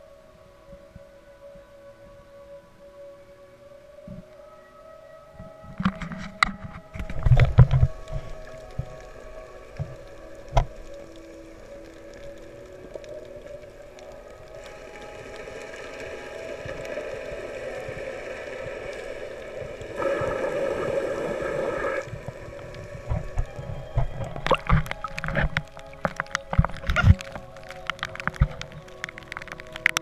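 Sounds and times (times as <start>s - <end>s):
muffled underwater hum: 0.0s - 30.0s
underwater rush of noise: 6.9s - 30.0s.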